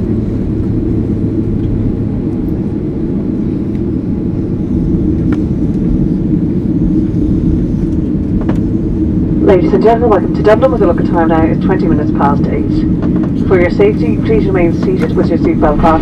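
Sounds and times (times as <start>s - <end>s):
jet engines and wheels rumbling: 0.0s - 16.0s
low hum: 0.0s - 16.0s.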